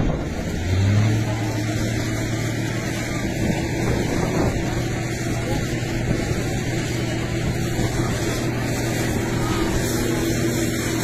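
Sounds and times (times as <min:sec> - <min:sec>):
engine humming: 0:00.0 - 0:11.0
rough noisy haze: 0:00.0 - 0:11.0.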